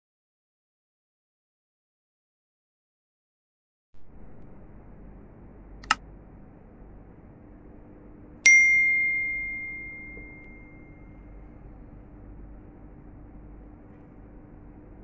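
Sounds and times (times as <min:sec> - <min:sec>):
faint steady hum: 0:04.0 - 0:15.0
sharp click: 0:05.8 - 0:06.0
bell-like notification ding: 0:08.5 - 0:11.1.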